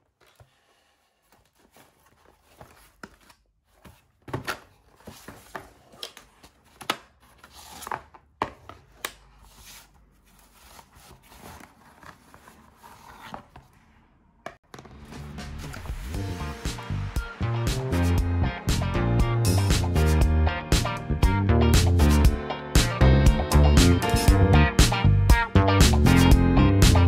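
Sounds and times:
packaging being handled and opened: 0.0 - 13.7.

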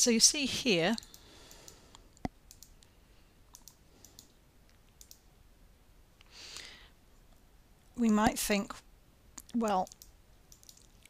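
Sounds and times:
computer mouse clicking: 1.0 - 2.9, 3.5 - 5.3, 9.4 - 11.0.

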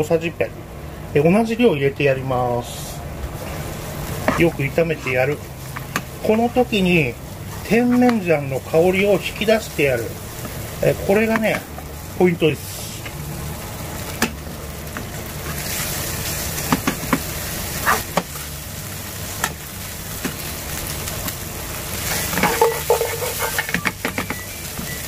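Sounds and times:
meat sizzling in a frying pan: 3.2 - 25.0
ladle scraping a pan: 22.0 - 23.8.

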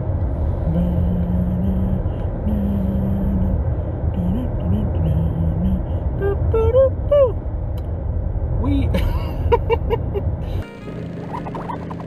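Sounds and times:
car cabin road rumble: 0.0 - 12.0
man humming low notes: 0.6 - 7.4.

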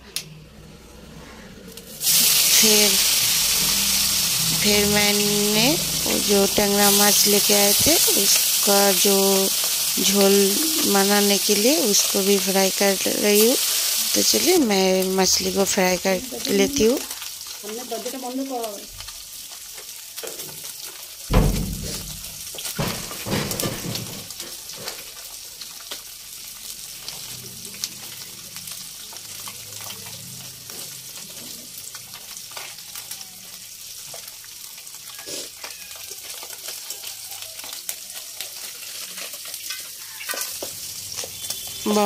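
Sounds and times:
fish sizzling in oil: 1.0 - 42.0
loud thump: 21.3 - 23.9.

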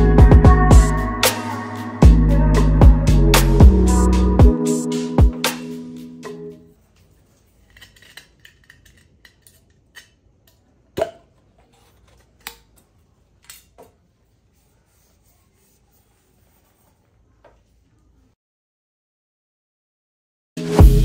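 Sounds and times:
tin cans scraping and crinkling: 7.0 - 10.2, 11.3 - 12.8.

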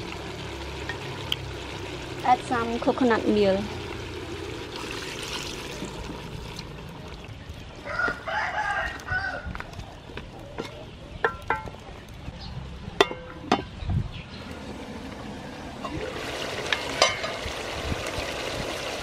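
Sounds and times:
low sizzle in a pot: 0.0 - 19.0
rooster crowing: 7.8 - 9.6.

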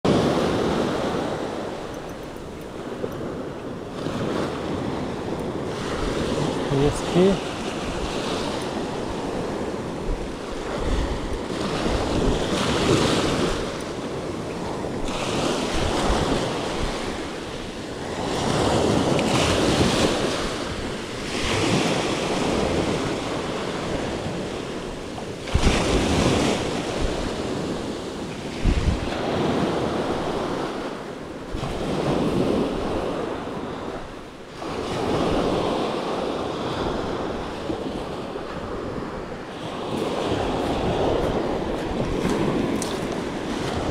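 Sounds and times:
waves breaking on sandy beach: 0.1 - 43.9
wind buffeting microphone: 0.1 - 43.9.

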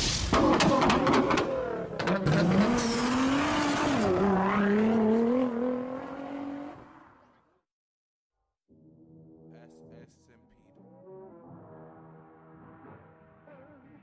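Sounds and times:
car engine revving: 0.4 - 7.5.

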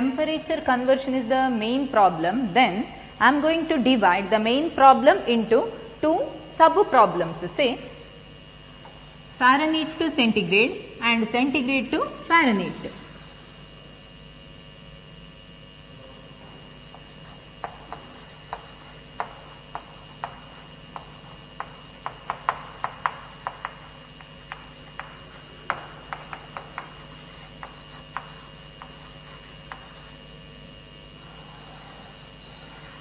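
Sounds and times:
steady low hum: 0.0 - 33.0
chalk tapping on chalkboard: 16.9 - 30.3.

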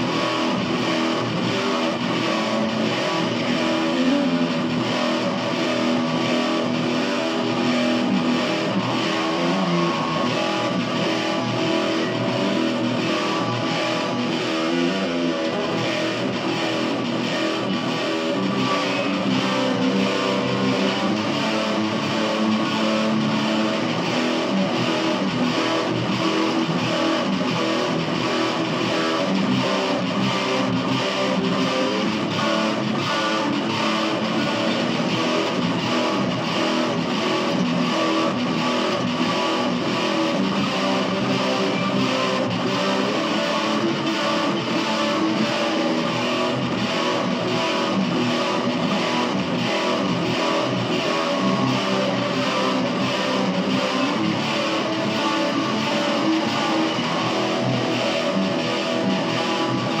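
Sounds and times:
guitar strumming: 0.0 - 60.0.

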